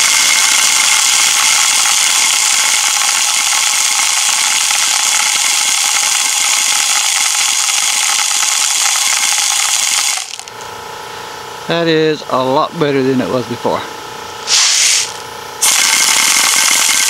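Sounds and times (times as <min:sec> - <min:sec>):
compressed air hissing: 0:00.0 - 0:10.5, 0:14.4 - 0:17.0.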